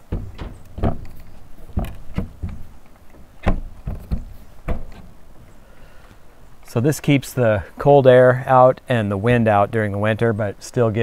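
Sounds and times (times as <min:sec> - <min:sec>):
window insert knocking into frame: 0:00.0 - 0:02.7, 0:03.4 - 0:05.2.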